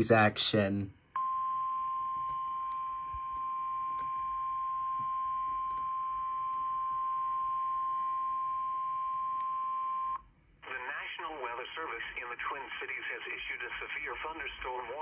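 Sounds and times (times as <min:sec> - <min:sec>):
steady warning alarm beep: 0:01.2 - 0:10.2.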